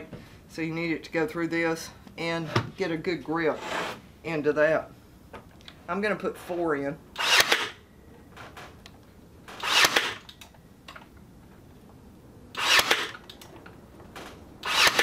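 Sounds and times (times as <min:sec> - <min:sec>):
brad nailer firing: 0:07.2 - 0:07.8, 0:09.5 - 0:10.3, 0:12.6 - 0:13.3, 0:14.2 - 0:15.0.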